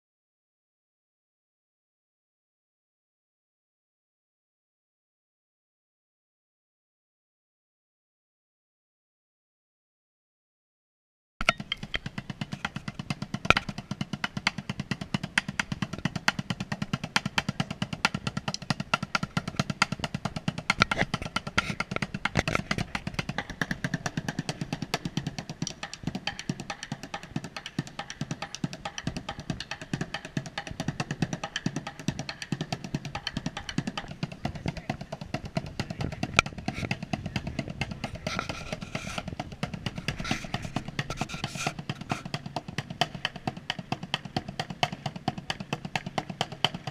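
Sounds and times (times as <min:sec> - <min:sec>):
drumming on buckets and pots: 0:11.4 - 0:46.9.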